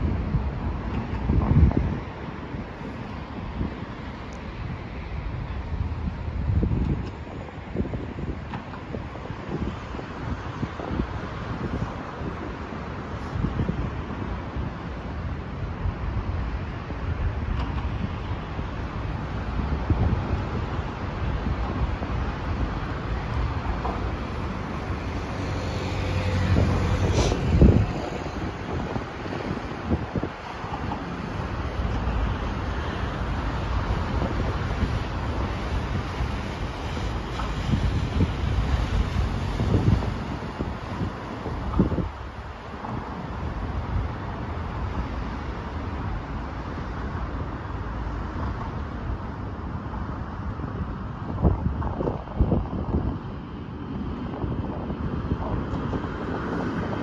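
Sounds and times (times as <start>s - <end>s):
road traffic rumble: 0.0s - 57.0s
wind on microphone: 0.0s - 57.0s
vehicle passing: 24.2s - 28.5s.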